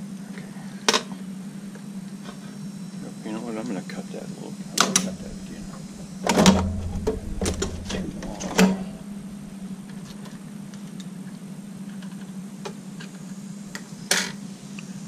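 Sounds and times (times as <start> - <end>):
steady low hum: 4.0 - 11.8.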